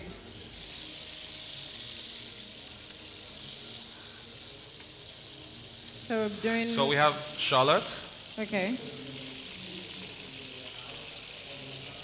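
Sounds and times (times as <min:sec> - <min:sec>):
crab claws sizzling in oil: 0:00.0 - 0:12.0.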